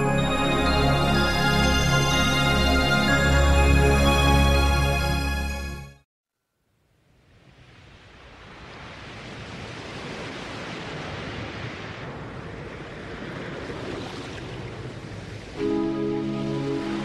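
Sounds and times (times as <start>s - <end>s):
waves breaking in rough surf: 7.3s - 17.0s.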